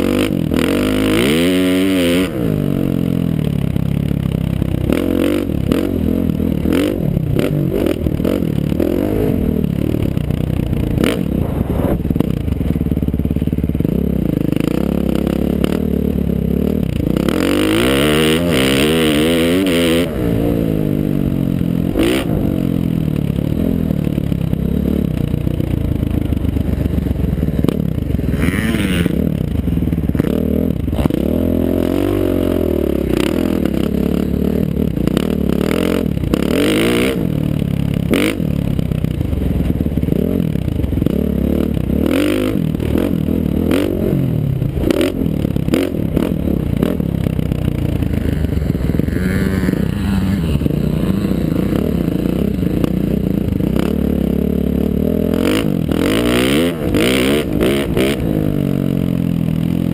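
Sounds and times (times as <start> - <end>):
dirt bike engine revving: 0.0 - 59.9
wind rushing over camera: 11.0 - 12.6.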